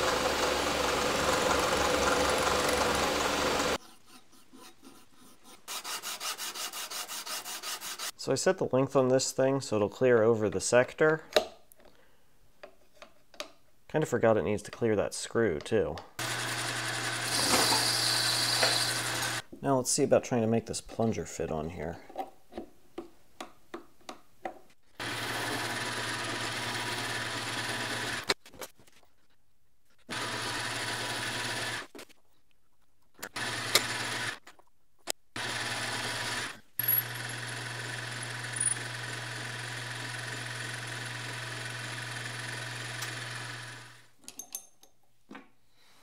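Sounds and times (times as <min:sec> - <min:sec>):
metal lathe running: 0:00.0 - 0:03.8, 0:16.2 - 0:19.4, 0:35.5 - 0:44.0.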